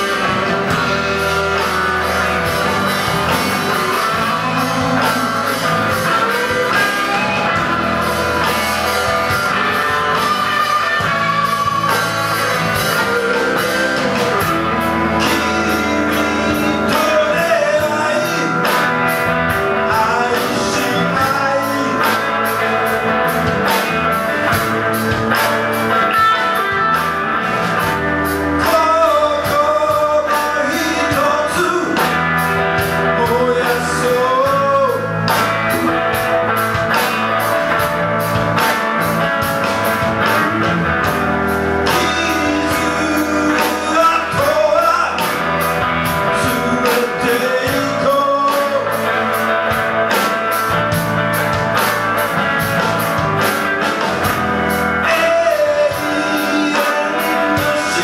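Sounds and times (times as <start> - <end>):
electric guitars: 0.0 - 58.0
steady drum beat: 0.0 - 58.0
man singing: 2.3 - 23.4, 28.0 - 36.2, 40.3 - 49.8, 54.2 - 58.0.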